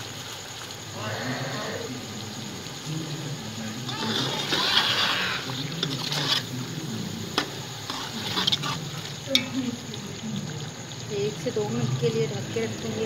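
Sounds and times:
mince sizzling: 0:00.0 - 0:13.0
metal spoon scraping a pot: 0:03.9 - 0:06.7, 0:07.3 - 0:09.6.

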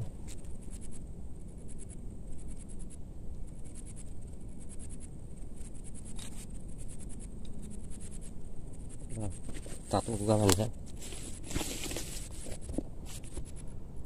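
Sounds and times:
steady low rumble: 0:00.0 - 0:14.0
high-pitched insect chirping: 0:01.6 - 0:10.0.

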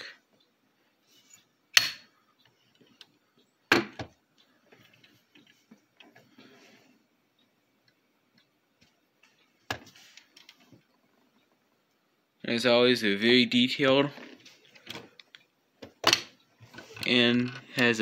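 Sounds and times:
faint ticks and rustles: 0:04.2 - 0:12.1.

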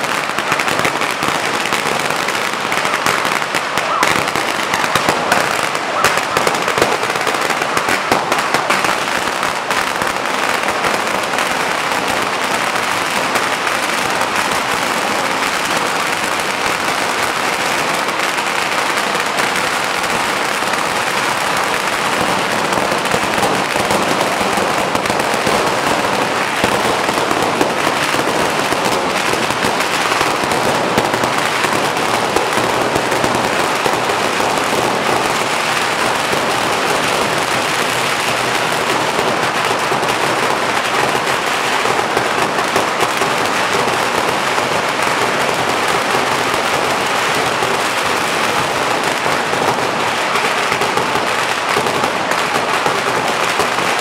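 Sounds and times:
firecrackers crackling: 0:00.0 - 0:54.0.

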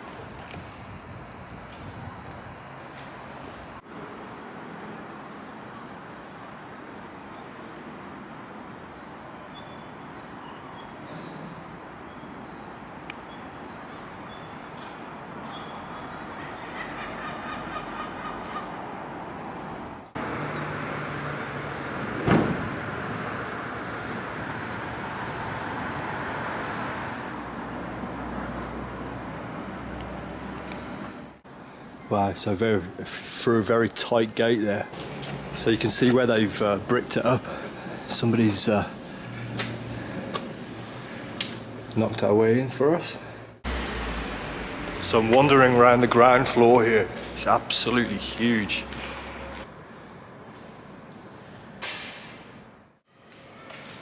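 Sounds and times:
city hum: 0:00.0 - 0:54.0
small birds chirping: 0:12.1 - 0:18.7
train passing on viaduct: 0:43.6 - 0:51.0.

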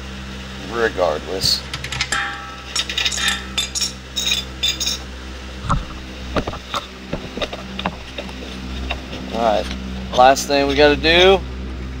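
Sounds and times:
wrenches clinking on a nut: 0:01.7 - 0:05.0.

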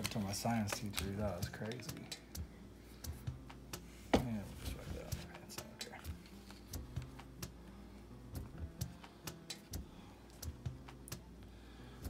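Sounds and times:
plastic tray and packets clicking: 0:00.0 - 0:02.0.

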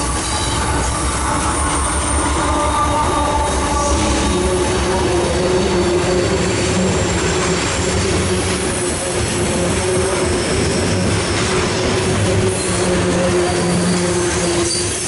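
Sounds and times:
freight train wheels rumbling: 0:00.0 - 0:15.0
wheel squeal: 0:10.0 - 0:15.0.

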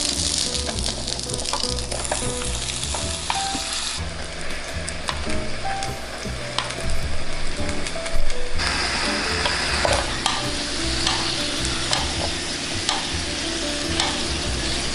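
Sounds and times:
dough sizzling in waffle maker: 0:00.0 - 0:04.0, 0:08.6 - 0:14.9.

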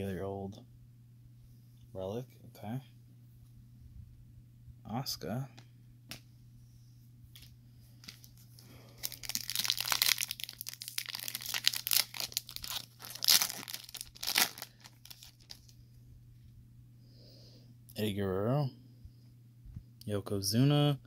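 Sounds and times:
foil wrapper tearing and crinkling: 0:08.0 - 0:15.7.

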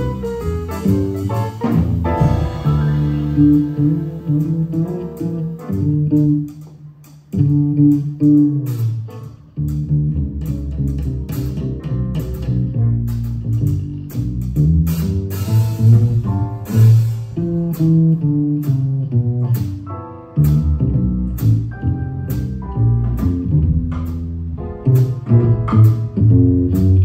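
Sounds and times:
piano chords: 0:00.0 - 0:06.8, 0:15.4 - 0:18.8, 0:19.4 - 0:27.0
plucked double bass: 0:00.0 - 0:27.0.

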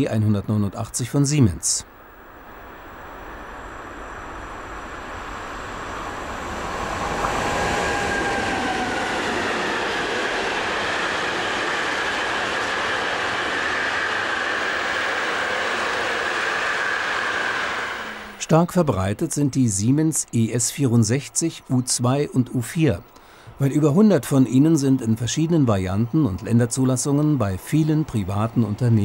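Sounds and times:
high whine: 0:00.0 - 0:29.0
train wheels rumbling on rail: 0:03.2 - 0:23.1.

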